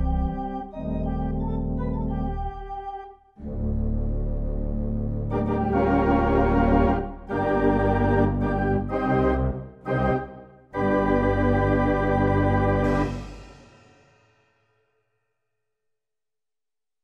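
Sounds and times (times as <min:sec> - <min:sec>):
organ playing chords: 0:00.0 - 0:13.5.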